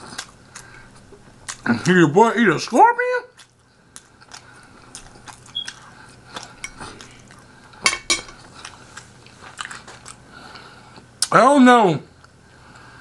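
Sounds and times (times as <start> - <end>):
cutlery clinking on plate: 7.8 - 8.4.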